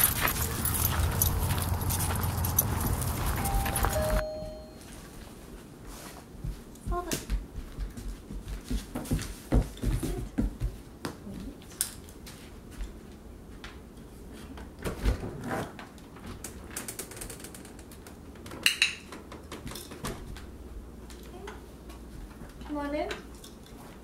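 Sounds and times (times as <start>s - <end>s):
puppy claws clicking on floor: 0.0s - 4.0s
footsteps on parquet floor: 0.0s - 4.2s, 6.0s - 11.2s.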